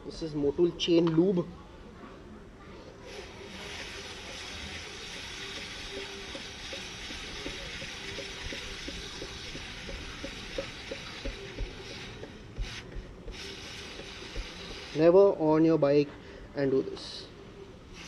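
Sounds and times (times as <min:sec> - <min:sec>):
aerosol spray hissing: 0:03.1 - 0:15.4
faint ticking: 0:03.6 - 0:15.0.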